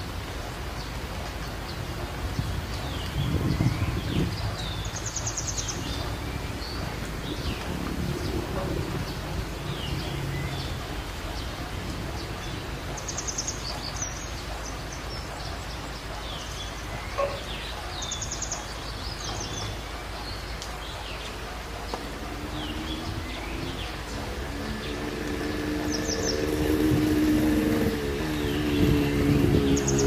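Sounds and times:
small birds chirping: 0.7 - 30.0
low outdoor rumble: 2.0 - 16.5, 19.1 - 30.0
vehicle engine hum: 5.3 - 16.2, 21.3 - 30.0.

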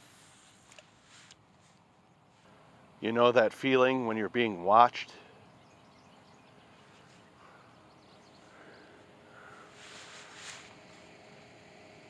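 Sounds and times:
soft hiss: 0.0 - 2.8, 9.3 - 11.3.

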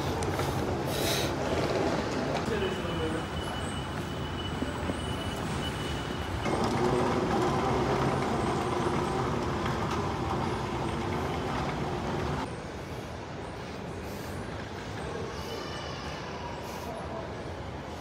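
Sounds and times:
vehicle engine droning: 6.4 - 12.5.

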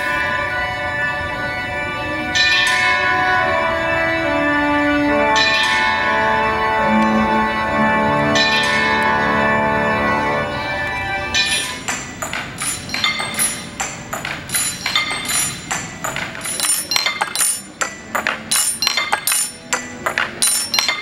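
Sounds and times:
tableware clinking: 11.4 - 21.0.

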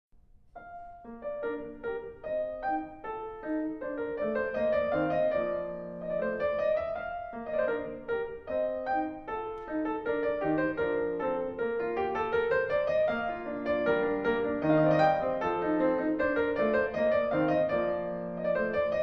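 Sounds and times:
piano music: 0.5 - 19.0.

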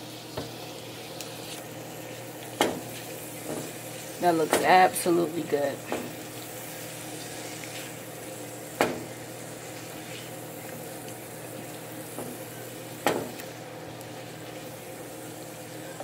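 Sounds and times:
food sizzling: 0.0 - 16.0.

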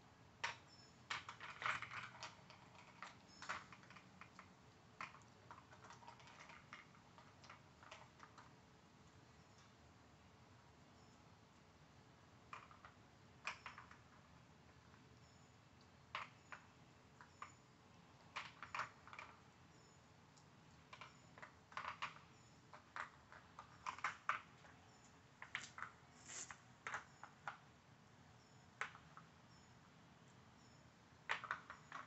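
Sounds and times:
plastic puzzle toy clicking: 0.4 - 8.5, 18.3 - 19.4, 20.4 - 24.8, 31.3 - 32.0.

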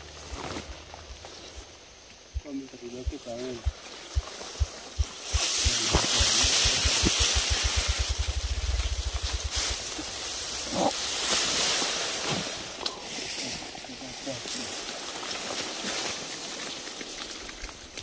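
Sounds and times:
dry grass rustling: 0.0 - 18.0
quick low thumps: 2.3 - 10.6
wind on microphone: 2.4 - 10.8.

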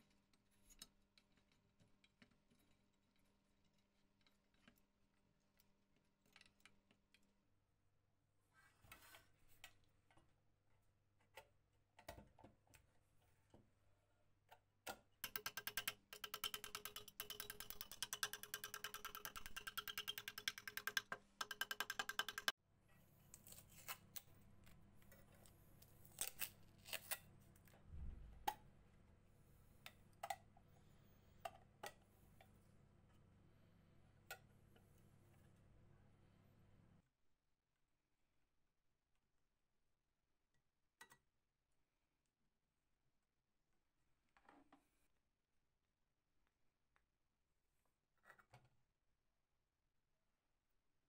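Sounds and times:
fast dense clicking: 15.3 - 22.5.

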